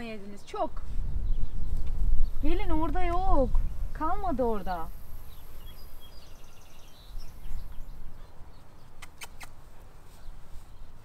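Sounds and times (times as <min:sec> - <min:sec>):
wind rumble: 0:00.0 - 0:08.6
bird chirping trill: 0:04.5 - 0:09.5
sharp clicks: 0:09.0 - 0:09.6.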